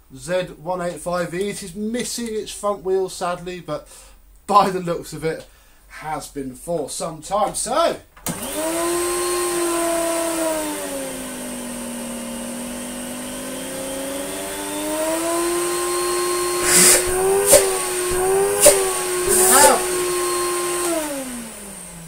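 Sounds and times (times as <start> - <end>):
vacuum cleaner motor: 8.3 - 22.0.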